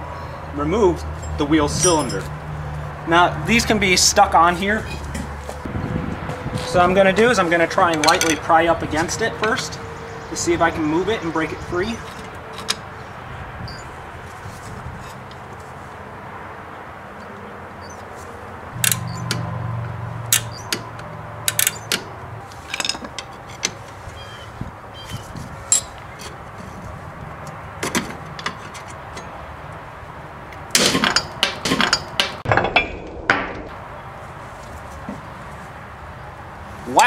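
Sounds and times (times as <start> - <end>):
pry bar clicking and scraping metal: 11.9 - 12.9, 18.8 - 19.5, 20.3 - 24.3, 25.1 - 29.4, 30.6 - 32.5.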